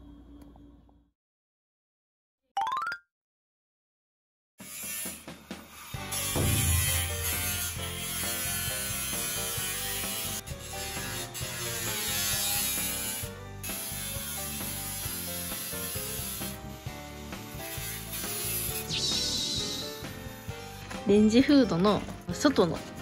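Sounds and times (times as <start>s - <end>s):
tool grinding through wall: 6.0s - 16.6s.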